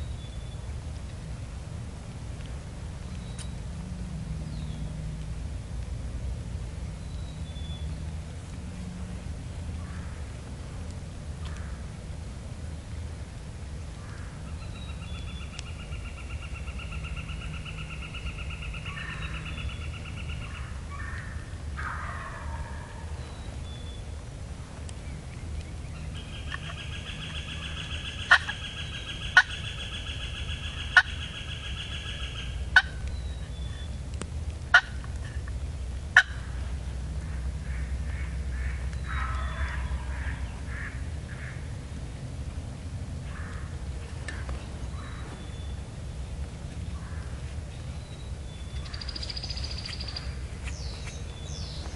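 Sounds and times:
turkey gobbling: 0:21.8 - 0:23.0, 0:26.5 - 0:29.6, 0:30.8 - 0:31.2, 0:32.0 - 0:33.0, 0:34.7 - 0:35.0, 0:36.2 - 0:36.4, 0:37.7 - 0:41.5.

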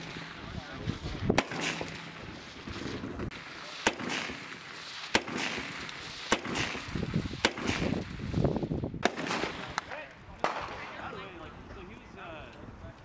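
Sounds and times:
rifle shots with echo: 0:00.0 - 0:08.3, 0:09.0 - 0:11.0.

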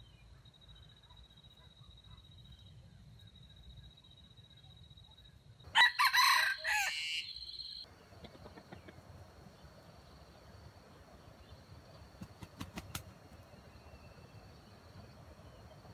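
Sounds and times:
rooster crowing: 0:05.7 - 0:07.8.

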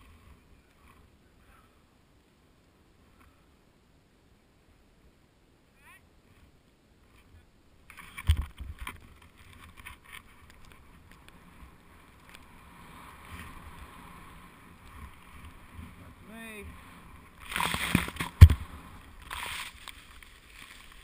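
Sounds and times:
heavy thump: 0:17.7 - 0:18.7.

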